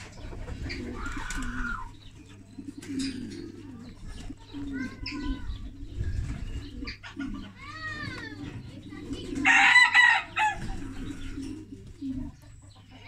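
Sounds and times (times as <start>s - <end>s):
rooster crowing: 9.5s - 10.6s.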